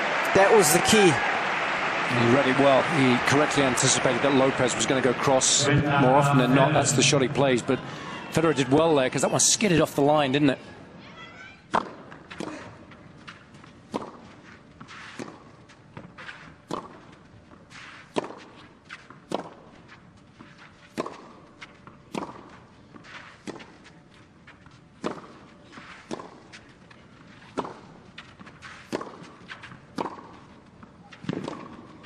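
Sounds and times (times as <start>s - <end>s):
tennis ball hit by rackets: 11.7s - 12.6s, 16.0s - 17.0s, 17.7s - 18.5s, 22.1s - 22.4s, 25.0s - 26.6s, 28.6s - 30.4s, 31.1s - 32.0s.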